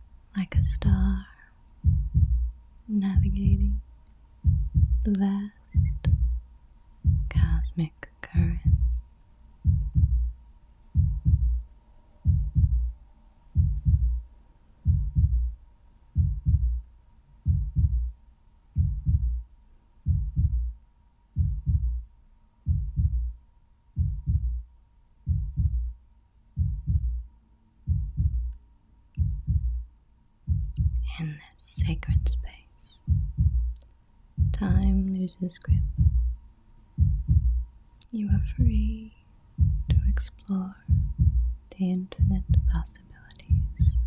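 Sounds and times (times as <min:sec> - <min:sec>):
faint steady hum: 0:00.0 - 0:44.0
heartbeat thumping: 0:00.5 - 0:03.8, 0:04.4 - 0:06.4, 0:07.0 - 0:07.7, 0:08.3 - 0:09.0, 0:09.6 - 0:13.0, 0:13.6 - 0:15.6, 0:16.2 - 0:16.8, 0:17.4 - 0:18.2, 0:18.8 - 0:20.8, 0:21.4 - 0:22.0, 0:22.6 - 0:23.4, 0:24.0 - 0:24.6, 0:25.3 - 0:26.0, 0:26.6 - 0:27.3, 0:27.9 - 0:28.6, 0:29.2 - 0:29.8, 0:30.5 - 0:31.2, 0:31.8 - 0:33.8, 0:34.4 - 0:35.1, 0:35.7 - 0:36.4, 0:37.0 - 0:39.0, 0:39.6 - 0:41.6, 0:42.2 - 0:44.0.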